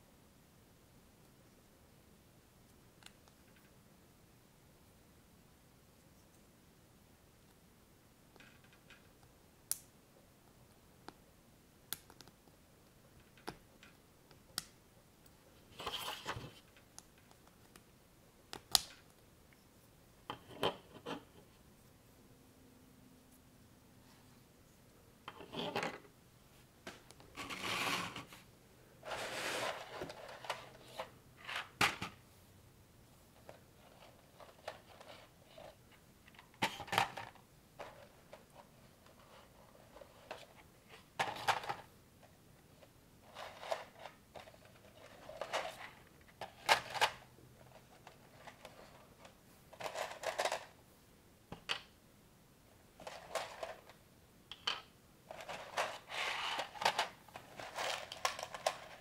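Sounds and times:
rustling of loose plastic parts: 29.0 - 32.2, 33.4 - 50.8, 53.0 - 54.0, 54.7 - 59.0.

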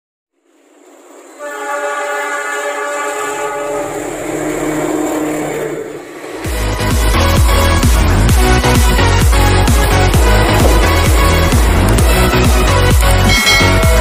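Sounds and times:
train wheels on rails: 0.3 - 14.0
locomotive engine running: 0.4 - 14.0
locomotive air horn blast: 1.3 - 6.1
music with a beat: 6.5 - 14.0.

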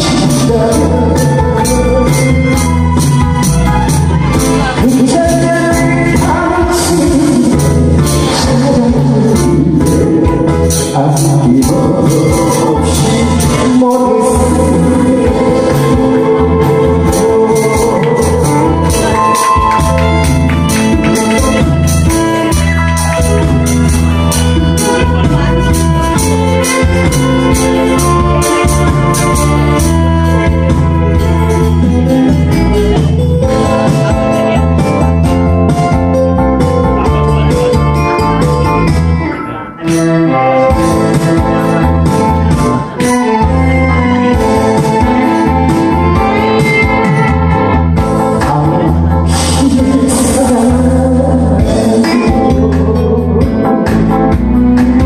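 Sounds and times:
man singing into microphone: 0.0 - 23.5, 44.2 - 55.0
backing music with steady beat: 0.0 - 55.0
electronic keyboard chords: 0.0 - 55.0.

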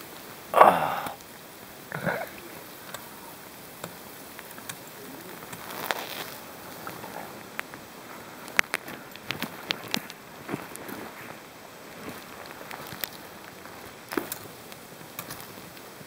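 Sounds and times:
faint steady hiss: 0.0 - 16.0
sharp crunches and clicks: 3.7 - 7.8, 8.4 - 11.2, 12.0 - 15.9
footsteps crunching in snow: 5.3 - 14.3.

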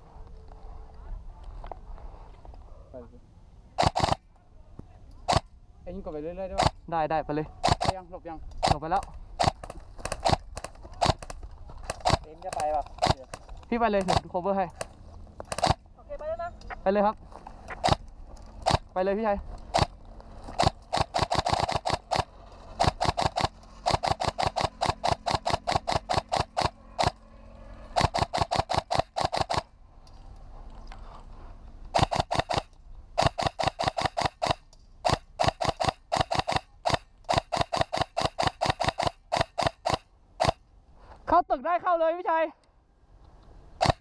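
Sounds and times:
airsoft rifle firing rapidly: 3.8 - 4.2, 5.2 - 5.5, 6.5 - 6.8, 7.6 - 8.0, 8.6 - 14.4, 15.5 - 15.8, 17.7 - 18.0, 18.6 - 19.0, 19.7 - 27.2, 27.9 - 29.7, 32.0 - 40.6, 43.8 - 44.0.

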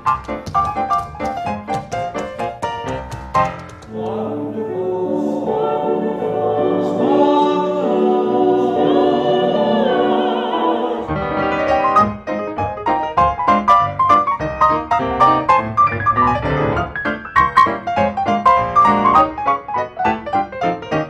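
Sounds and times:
grand piano: 0.0 - 21.0
soprano and man singing: 3.9 - 11.1.

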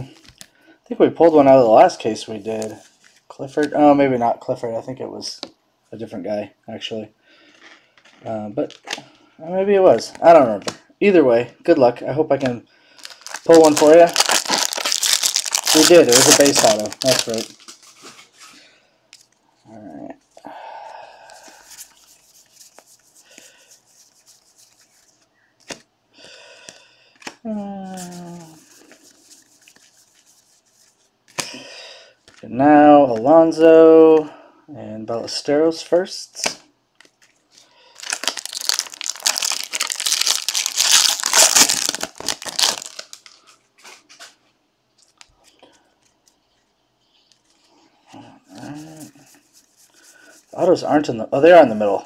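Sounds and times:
foil wrapper tearing and crinkling: 13.0 - 18.0, 38.0 - 43.5
cards rubbing and flicking: 21.4 - 25.8, 27.2 - 31.4, 48.6 - 50.6.

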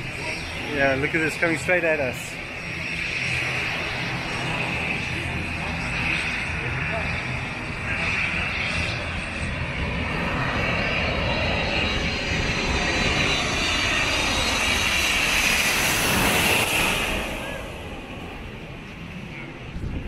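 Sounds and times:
jet airliner flying overhead: 0.0 - 20.0.

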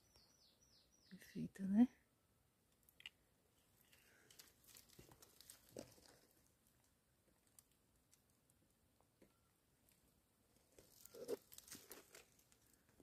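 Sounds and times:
dry leaves crackling: 4.3 - 6.4, 10.8 - 12.8.

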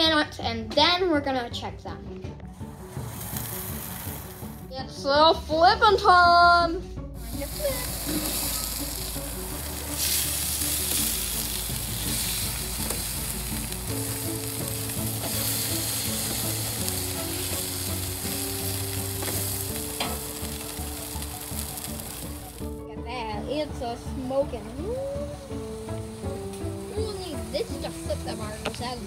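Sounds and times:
burger patties sizzling on grill: 2.6 - 4.6, 7.2 - 22.8, 25.0 - 29.0.

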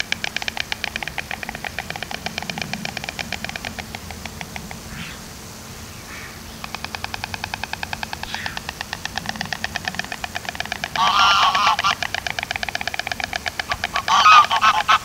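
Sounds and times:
storks clattering bills: 0.0 - 15.0
goose honking: 8.2 - 15.0.

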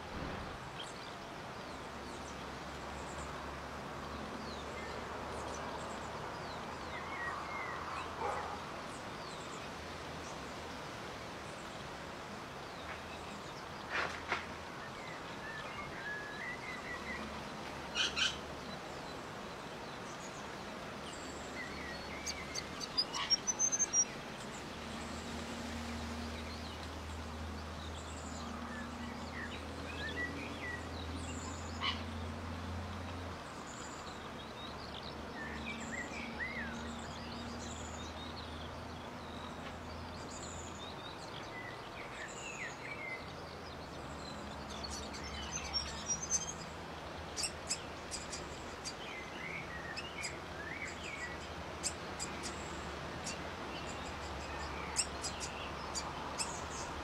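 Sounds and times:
small birds chirping: 11.5 - 32.3, 33.4 - 57.0.

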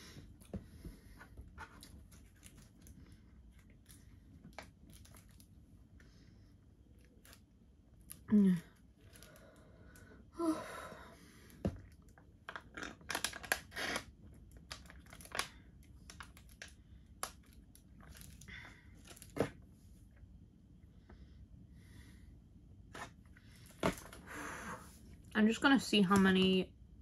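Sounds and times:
drink pouch crinkling: 12.5 - 15.5.

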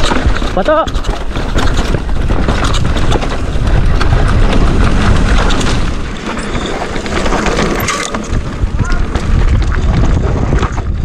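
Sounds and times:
bike rattling over rocks: 0.0 - 11.0
wind buffeting microphone: 0.0 - 11.0.

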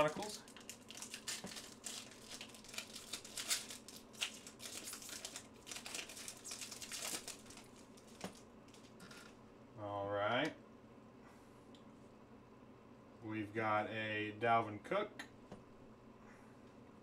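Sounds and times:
foil wrapper crinkling and tearing: 0.0 - 9.0.

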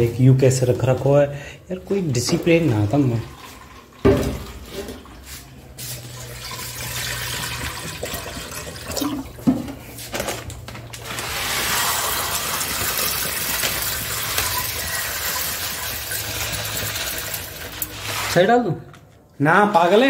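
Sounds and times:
tap water running into sink: 6.1 - 9.6, 11.2 - 18.0.

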